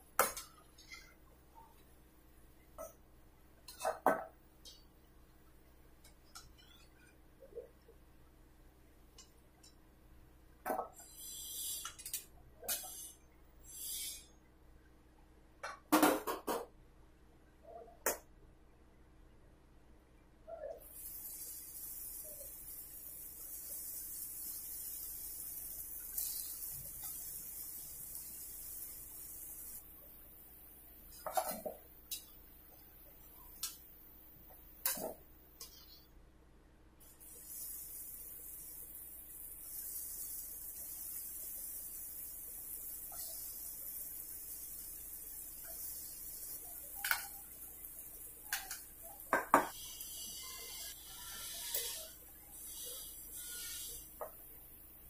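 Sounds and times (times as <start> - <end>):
deep-frying sizzling hiss: 10.6 - 14.3, 20.8 - 36.0, 37.0 - 55.0.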